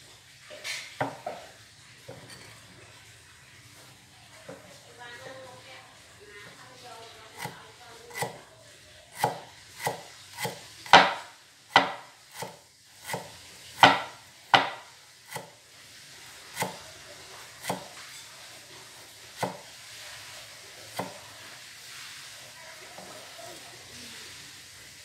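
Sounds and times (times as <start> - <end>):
knife chopping on wooden board: 7.4 - 8.4, 9.2 - 15.6, 16.5 - 16.8, 17.6 - 18.0, 19.4 - 19.7, 20.9 - 21.3.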